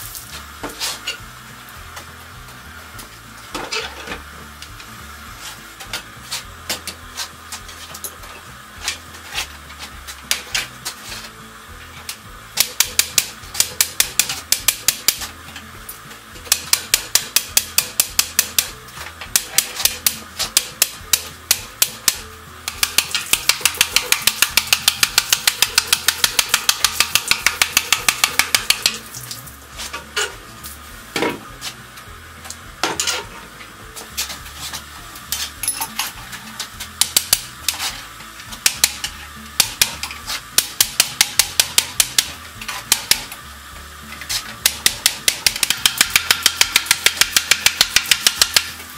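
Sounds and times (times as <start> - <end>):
steady hiss: 0.0 - 3.5.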